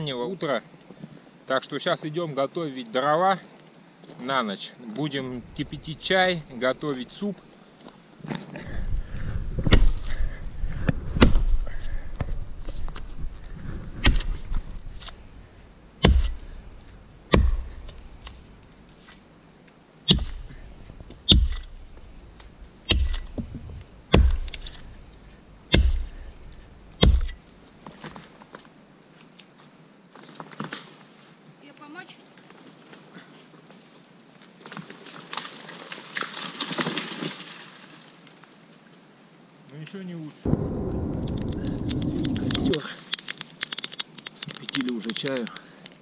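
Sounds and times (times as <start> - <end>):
axe chopping wood: 9.6 - 10.2, 14.0 - 14.5, 16.0 - 16.6, 17.3 - 18.4, 20.1 - 22.0, 22.8 - 24.9, 25.7 - 27.4.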